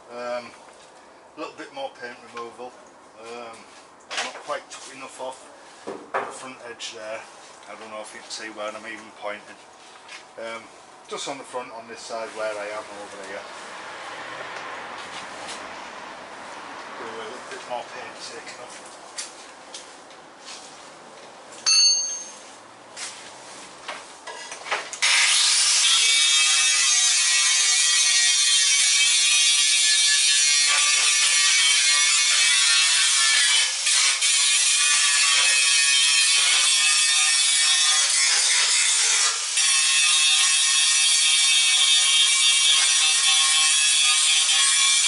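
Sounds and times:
angle grinder grinding metal: 25.0 - 45.0.

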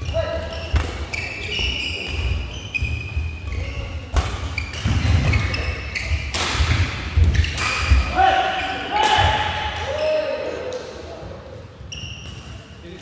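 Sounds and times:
shoes squeaking on court: 0.0 - 8.0, 11.8 - 12.8.

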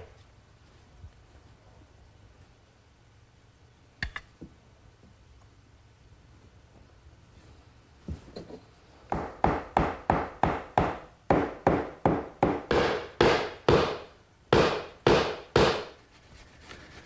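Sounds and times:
hammer knocking wooden pegs: 9.1 - 16.0.

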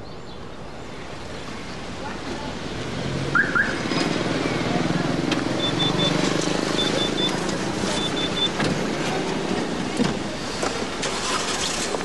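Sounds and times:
street noise: 0.0 - 12.0
car door opening and shutting: 6.8 - 9.0.

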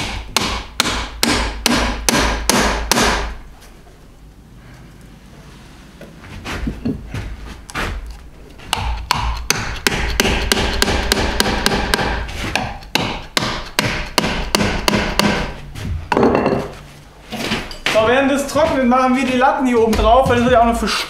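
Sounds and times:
hammer striking wooden dowels: 0.0 - 3.4, 8.6 - 16.8.

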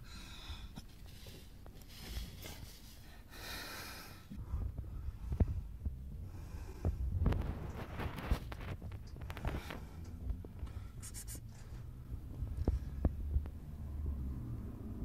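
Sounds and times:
person breathing: 0.0 - 7.3, 9.2 - 12.0
rustling of insulation: 6.9 - 10.9.

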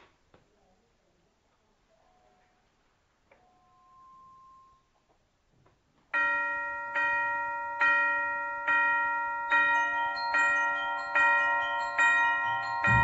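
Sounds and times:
bell tones: 6.2 - 13.0
ringing bell-like chord: 6.2 - 13.0.

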